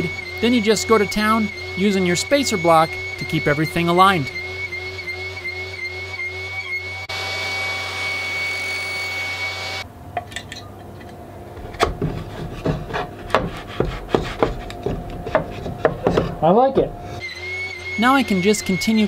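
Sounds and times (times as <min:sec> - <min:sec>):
table saw whining: 0:00.0 - 0:09.8, 0:14.6 - 0:19.0.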